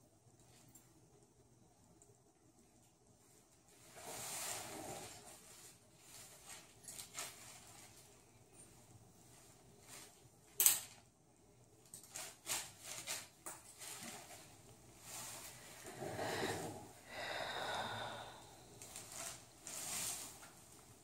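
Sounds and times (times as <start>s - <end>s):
gauze rustling: 3.6s - 10.4s, 12.0s - 17.0s, 18.8s - 21.0s.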